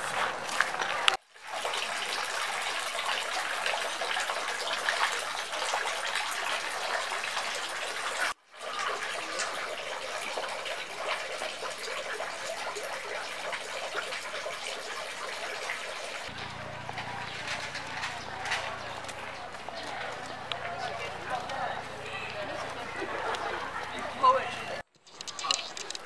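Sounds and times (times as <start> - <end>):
water pouring into basin: 0.0 - 16.4.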